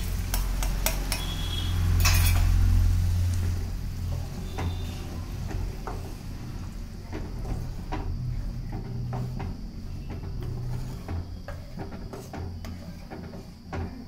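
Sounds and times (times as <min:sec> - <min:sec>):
spatula scraping metal pan: 0:00.2 - 0:02.8, 0:03.4 - 0:14.0
utensils clinking: 0:00.3 - 0:02.7.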